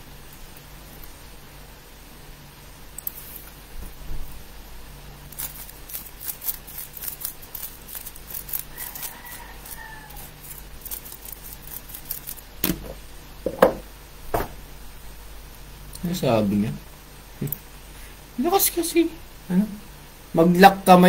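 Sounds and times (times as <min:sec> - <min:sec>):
knocks: 0:12.6 - 0:14.6.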